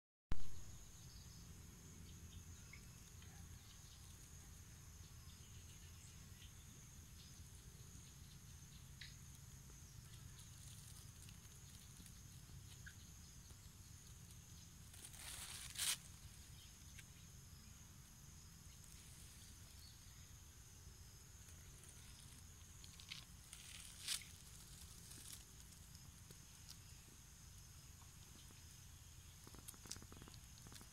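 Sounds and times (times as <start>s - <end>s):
high insect drone: 0.6s - 30.9s
faint ticks: 8.3s - 16.0s, 21.4s - 30.9s.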